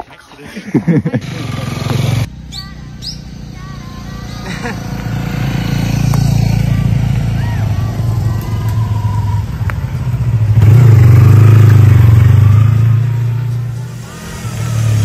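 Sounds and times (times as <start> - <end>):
motorcycle riding past: 1.1 - 15.0
second motorcycle approaching: 1.1 - 15.0.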